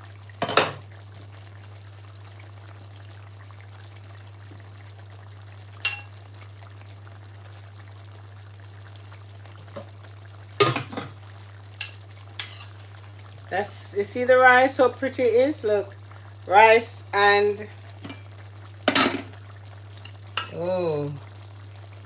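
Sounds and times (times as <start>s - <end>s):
spoon clinking on pot and bowl: 5.8s - 6.1s, 11.8s - 12.8s, 20.0s - 20.6s.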